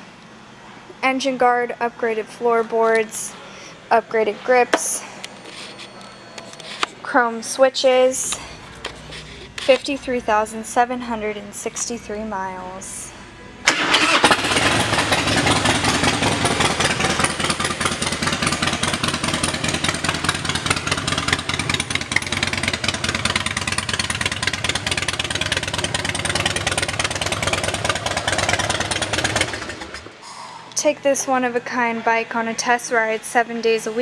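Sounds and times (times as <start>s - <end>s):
motorcycle engine idling: 13.8s - 30.1s.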